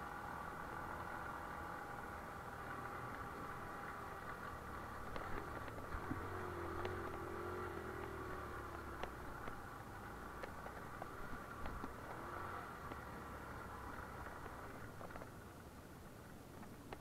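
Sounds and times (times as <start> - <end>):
vehicle engine at low revs: 0.0 - 17.0
stones clicking under wheels: 2.8 - 13.2.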